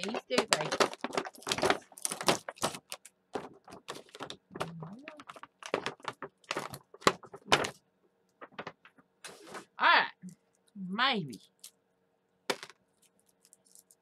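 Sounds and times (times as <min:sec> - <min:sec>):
plastic packaging crinkling: 0:00.0 - 0:09.8, 0:12.8 - 0:14.0.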